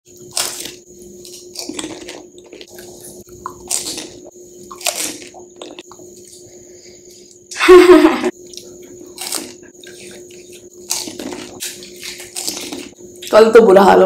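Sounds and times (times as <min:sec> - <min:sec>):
crisp shells crunching when bitten: 0:00.2 - 0:05.8, 0:09.1 - 0:10.2, 0:10.8 - 0:12.9
wet chewing: 0:00.2 - 0:06.5, 0:08.3 - 0:13.4.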